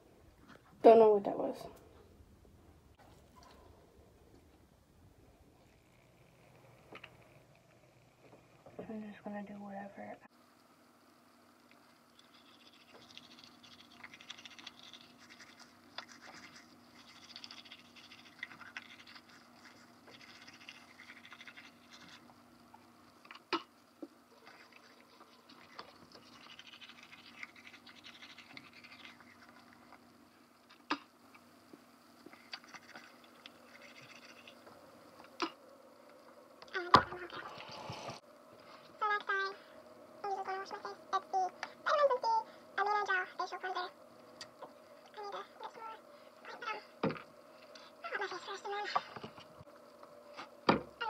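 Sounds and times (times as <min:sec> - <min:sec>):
low steady hum: 0:00.0 - 0:51.0
toothbrush scrubbing teeth: 0:12.2 - 0:22.3, 0:24.4 - 0:30.0, 0:32.3 - 0:34.6.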